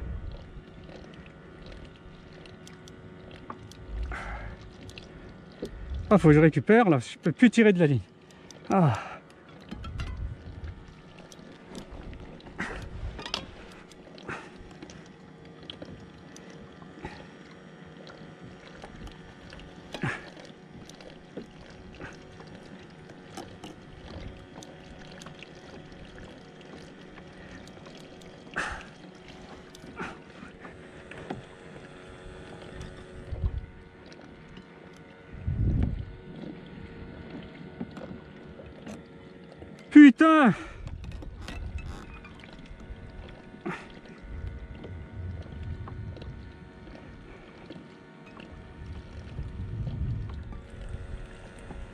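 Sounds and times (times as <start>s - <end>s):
faint steady hum: 0.0s - 51.9s
waves lapping against kayak hull: 0.0s - 51.9s
knocks and creaks: 9.5s - 10.8s, 13.1s - 13.8s, 40.8s - 43.4s.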